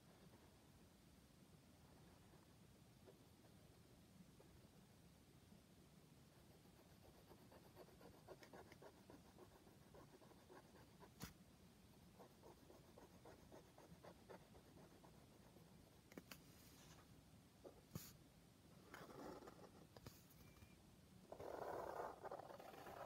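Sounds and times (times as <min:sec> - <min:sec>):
marker scratching on paper: 0:21.3 - 0:23.0.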